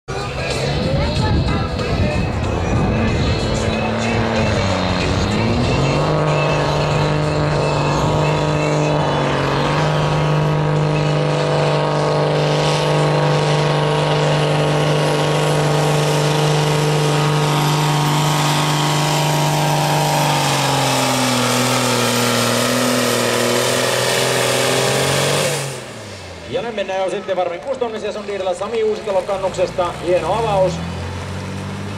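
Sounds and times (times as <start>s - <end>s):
tractor diesel engine under load: 0.0s - 31.9s.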